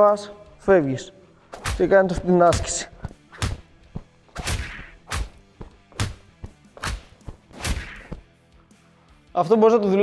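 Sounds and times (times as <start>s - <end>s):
feet landing on rubber floor: 2.5s - 8.3s.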